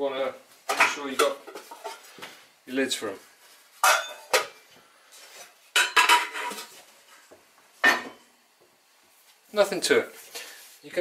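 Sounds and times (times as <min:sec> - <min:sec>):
metal pans clanking: 0:00.7 - 0:02.2, 0:03.8 - 0:04.6, 0:05.7 - 0:06.8, 0:07.8 - 0:08.2
pan lids clinking: 0:03.8 - 0:04.6, 0:05.7 - 0:06.8.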